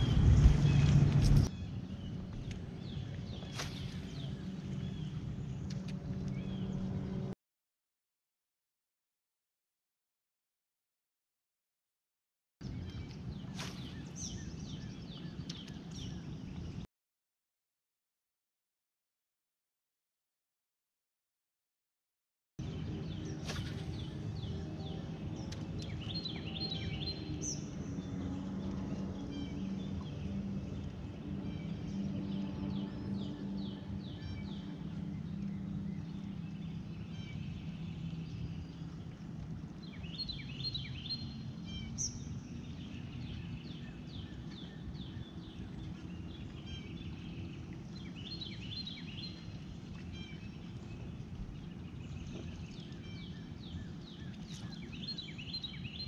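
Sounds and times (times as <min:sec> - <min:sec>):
birds chirping: 0:00.0 - 0:07.3, 0:12.6 - 0:16.8, 0:22.6 - 0:56.0
low steady hum: 0:00.0 - 0:07.4, 0:22.6 - 0:56.0.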